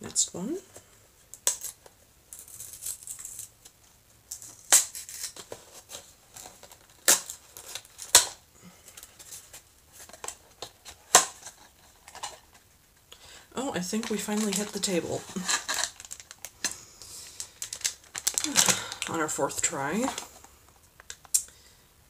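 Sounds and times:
packaging rustling and crinkling: 0:01.3 - 0:12.8, 0:13.8 - 0:21.3
packaging snapping and clicking: 0:15.4 - 0:16.8, 0:17.4 - 0:19.2.

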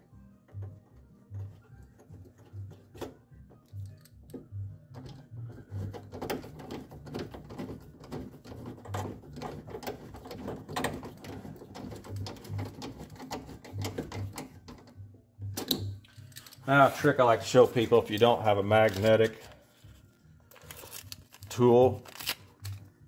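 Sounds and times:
screwdriver clicks and metal scrapes: 0:03.6 - 0:04.4, 0:15.6 - 0:16.7.

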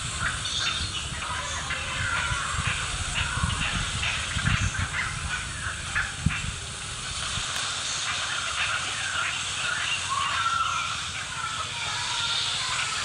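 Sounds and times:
wind rumbling on microphone: 0:00.0 - 0:11.6
steady hiss: 0:00.0 - 0:13.0
bird chirps: 0:00.1 - 0:02.5.

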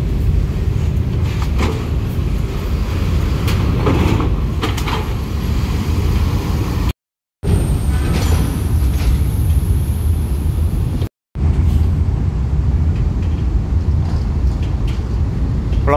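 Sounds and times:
clunks and rattles over steel plates: 0:01.1 - 0:02.3, 0:03.3 - 0:05.3.

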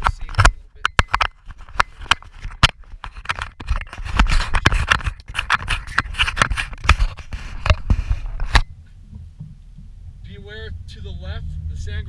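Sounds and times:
engine and tyres rumble: 0:06.7 - 0:12.0
vehicle cabin rattling and knocking: 0:07.7 - 0:10.1.

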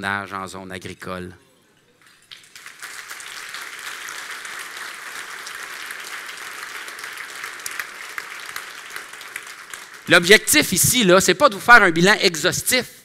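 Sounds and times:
audience applauding: 0:02.3 - 0:10.5.

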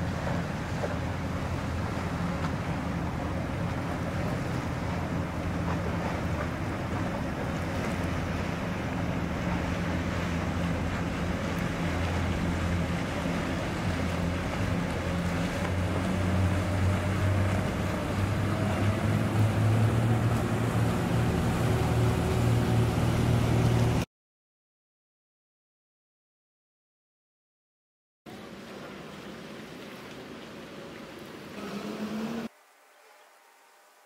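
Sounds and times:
boat engines humming: 0:00.0 - 0:24.1, 0:28.3 - 0:34.0
water wash: 0:00.0 - 0:24.1, 0:28.3 - 0:33.4.

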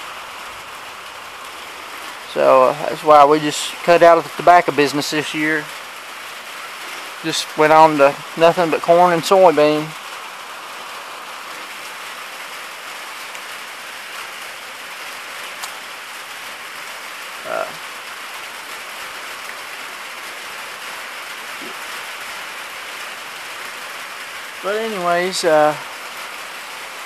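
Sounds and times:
steady rain hiss: 0:00.0 - 0:27.0.

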